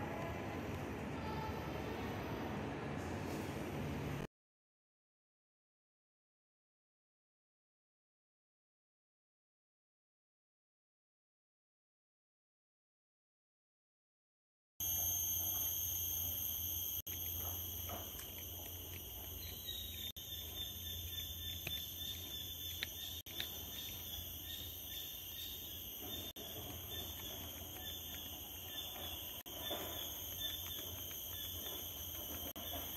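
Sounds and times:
insects droning: 14.8s - 32.9s.

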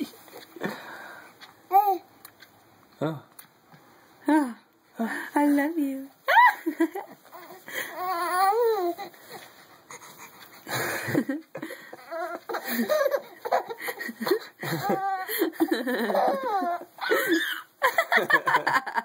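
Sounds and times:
baby laughing and squealing: 11.9s - 15.4s, 16.0s - 17.7s.

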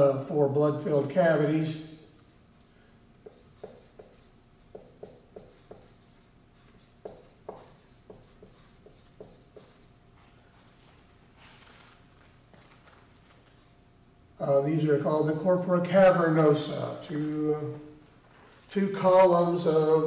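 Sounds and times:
marker squeaking on whiteboard: 3.2s - 9.9s.

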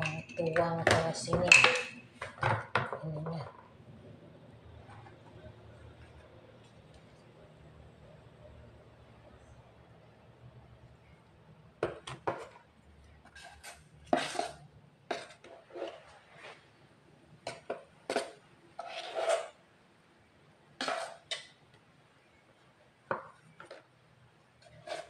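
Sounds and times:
spoon scraping jar: 13.2s - 16.6s, 17.5s - 19.6s, 20.8s - 21.5s, 24.6s - 25.0s.

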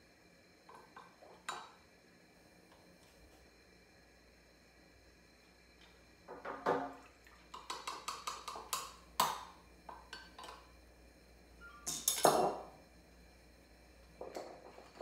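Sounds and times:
spoon and bottle clinking on glass: 11.8s - 12.6s.

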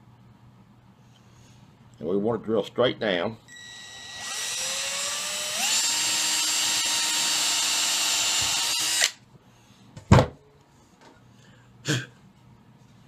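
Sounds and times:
cordless drill whine: 3.5s - 9.2s.

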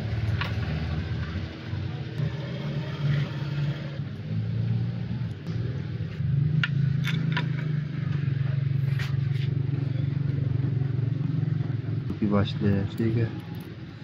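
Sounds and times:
engine running unevenly: 0.0s - 14.0s.

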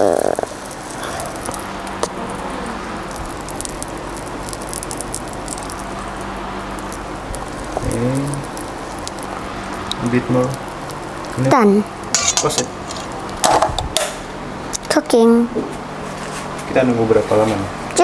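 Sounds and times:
batter sizzling in a waffle maker: 0.0s - 13.7s.

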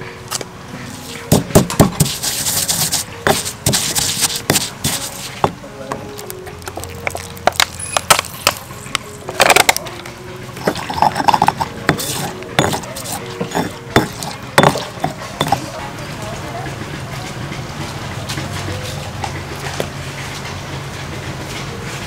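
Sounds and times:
pestle scraping in mortar: 0.8s - 20.6s
pestle knocking in stone mortar: 1.3s - 9.8s, 10.6s - 15.8s.

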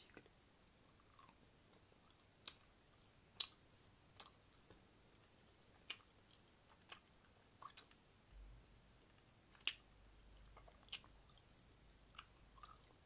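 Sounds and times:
wet mouth clicks: 5.8s - 8.0s.

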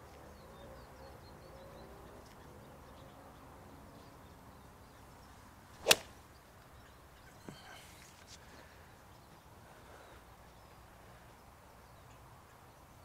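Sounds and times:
golf club striking ball: 5.8s - 6.1s
faint bird chirps: 6.3s - 13.0s.

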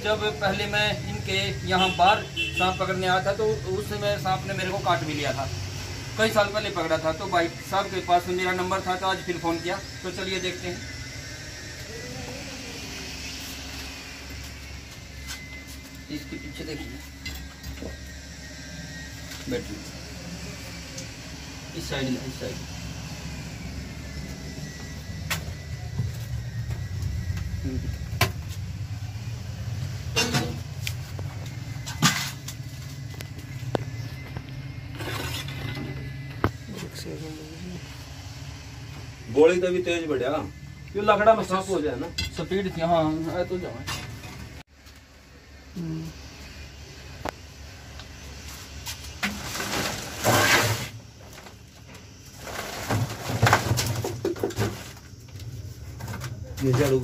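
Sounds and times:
steady low hum: 0.0s - 57.0s
plastic sack rustling and scraping: 49.2s - 51.6s, 52.3s - 55.0s.

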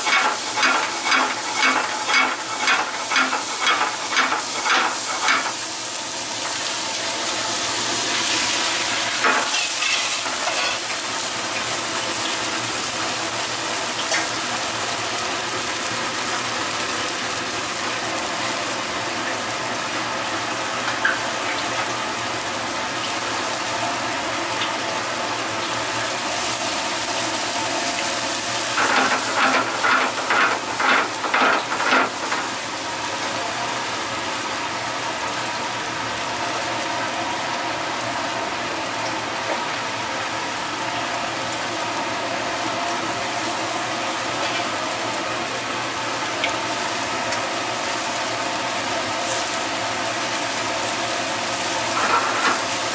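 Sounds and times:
stirring strokes against pan: 0.0s - 5.6s, 28.4s - 32.6s
food sizzling in a pan: 0.0s - 52.9s.

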